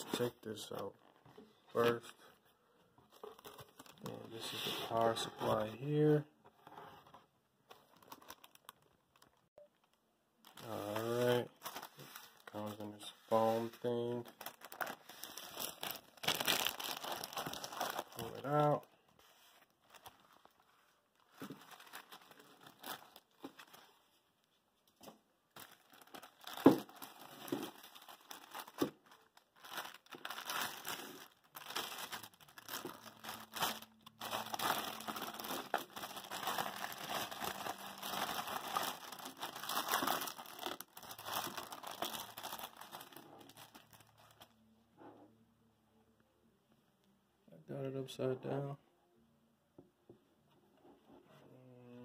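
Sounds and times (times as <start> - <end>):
plastic wrapping crinkling: 7.7 - 24.5, 25.5 - 44.5.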